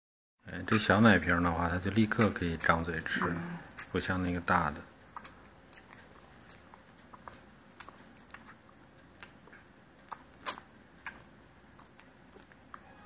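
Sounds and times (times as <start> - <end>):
puppy suckling wet clicks: 5.1 - 12.8.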